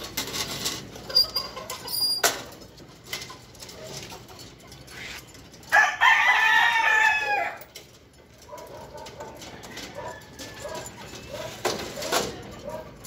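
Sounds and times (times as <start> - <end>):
rooster crowing: 5.7 - 7.7.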